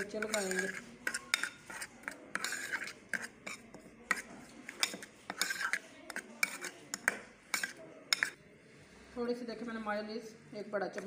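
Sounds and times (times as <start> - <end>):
metal spoon scraping a bowl: 0.0 - 8.4.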